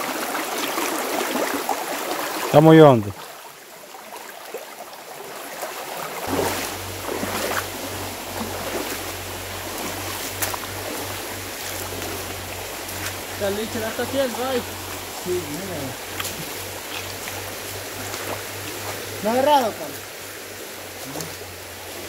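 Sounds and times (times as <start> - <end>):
creek water rushing: 0.0 - 22.0
low rumble: 6.3 - 22.0.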